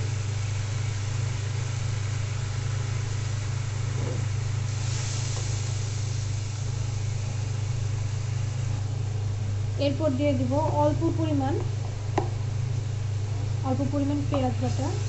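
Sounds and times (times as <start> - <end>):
paste sizzling in a pan: 0.0 - 9.4
low motor-like hum: 0.0 - 15.0.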